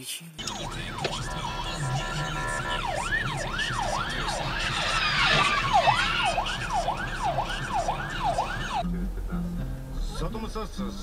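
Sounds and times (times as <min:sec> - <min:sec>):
police siren wailing: 0:00.4 - 0:08.9.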